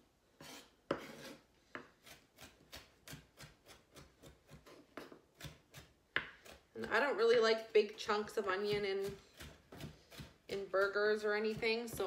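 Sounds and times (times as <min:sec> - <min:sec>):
knife chopping on wooden board: 0:00.4 - 0:07.0, 0:08.5 - 0:12.0.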